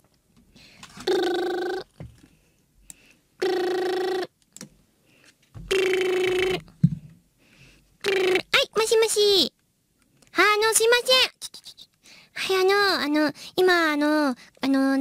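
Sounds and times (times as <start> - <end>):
telephone ringback tone: 1.0 - 1.9, 3.4 - 4.3.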